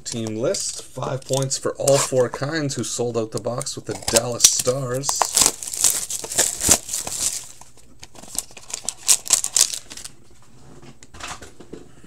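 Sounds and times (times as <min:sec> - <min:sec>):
plastic and foil wrapping crinkling: 0:04.0 - 0:10.2.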